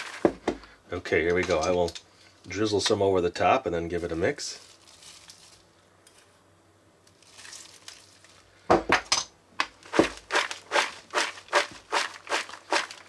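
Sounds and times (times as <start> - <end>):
popcorn tossed in a bowl: 9.8 - 13.0.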